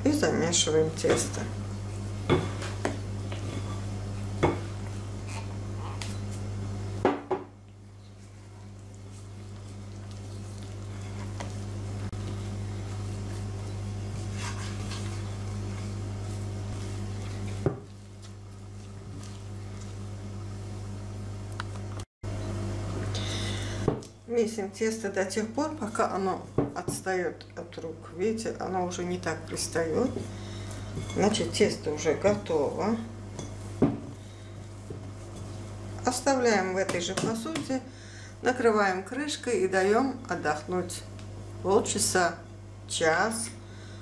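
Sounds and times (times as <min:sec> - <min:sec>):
wooden spoon scraping dough in bowl: 0:01.0 - 0:04.0, 0:09.0 - 0:20.0, 0:29.2 - 0:36.2.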